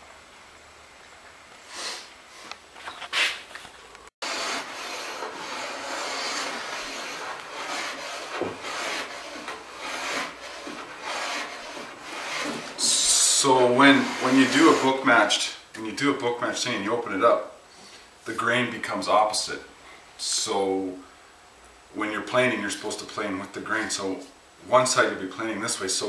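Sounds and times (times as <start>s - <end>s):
hand plane rasping over wood: 4.2s - 15.1s.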